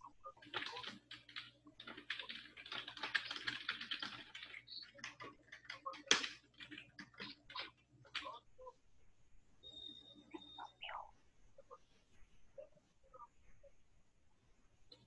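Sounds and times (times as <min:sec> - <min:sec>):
computer keyboard typing: 0:00.0 - 0:08.4.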